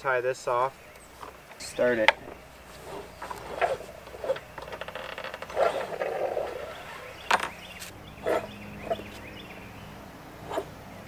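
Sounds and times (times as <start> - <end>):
light rustling and scraping: 0.5 - 9.4, 10.4 - 10.7
scratchy scrape: 2.7 - 7.2, 7.8 - 9.2, 10.5 - 10.7.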